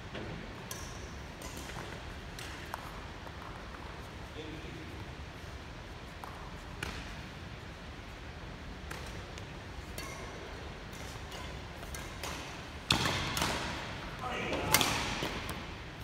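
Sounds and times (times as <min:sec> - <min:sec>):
rackets striking shuttlecock: 0:00.6 - 0:03.0, 0:08.8 - 0:15.8.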